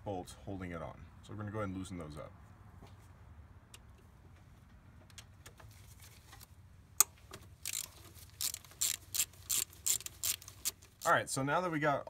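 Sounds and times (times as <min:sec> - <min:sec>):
socket ratchet clicking: 0:07.0 - 0:11.1.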